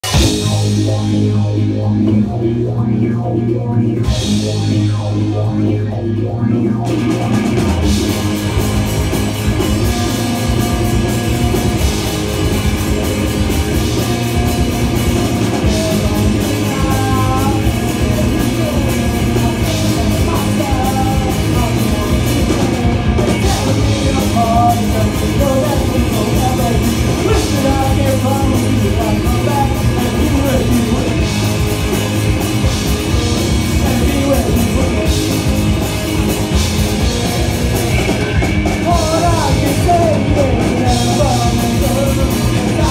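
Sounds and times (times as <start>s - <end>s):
pop-punk band playing: 0.0s - 42.9s
person singing lead vocal: 9.5s - 36.0s, 38.6s - 42.9s.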